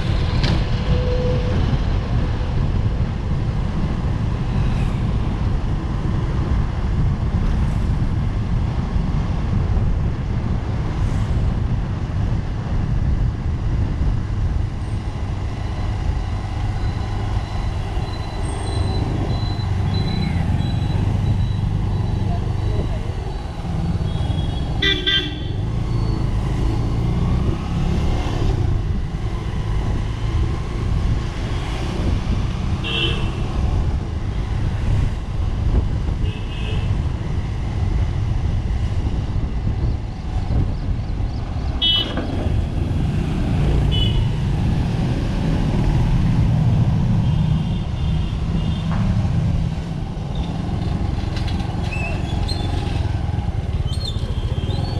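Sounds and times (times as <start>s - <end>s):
road traffic rumble: 0.0s - 54.9s
vehicle horn toots: 24.3s - 25.5s.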